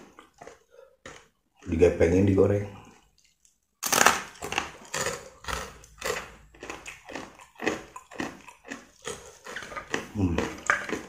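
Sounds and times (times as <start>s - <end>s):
crunchy chewing: 0.0s - 1.8s, 2.8s - 11.0s
loud crunch biting rice cracker: 3.8s - 11.0s.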